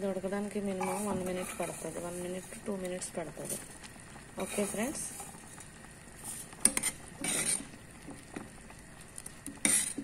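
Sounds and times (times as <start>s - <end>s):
pot boiling: 0.0s - 10.0s
ladle clinking and scraping pot: 0.8s - 2.6s, 4.4s - 7.8s, 9.4s - 10.0s.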